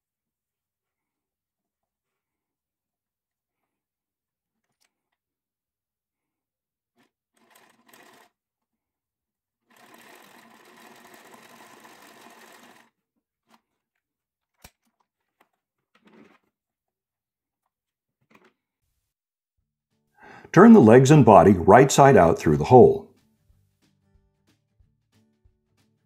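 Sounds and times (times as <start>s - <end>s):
sewing machine stitching: 7.0s - 8.4s, 9.6s - 13.8s, 15.9s - 16.5s.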